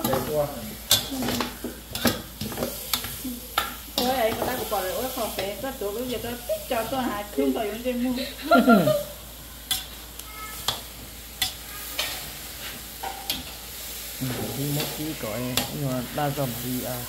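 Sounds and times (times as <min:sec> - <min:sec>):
food sizzling in a pan: 0:00.0 - 0:17.0
person speaking: 0:14.2 - 0:17.0.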